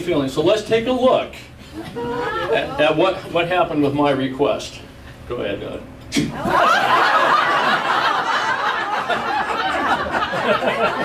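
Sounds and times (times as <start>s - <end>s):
audience laughing: 1.8s - 3.3s, 6.4s - 11.0s.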